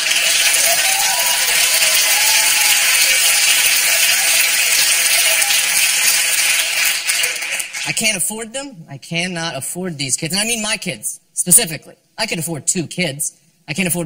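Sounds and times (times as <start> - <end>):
audience clapping: 0.0 - 8.2.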